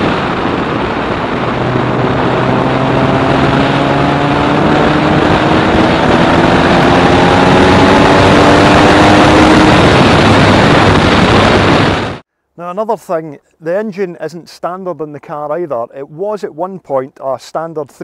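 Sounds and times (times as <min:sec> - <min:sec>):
car engine revving up: 0:00.0 - 0:12.2
road and wind noise: 0:00.0 - 0:12.3.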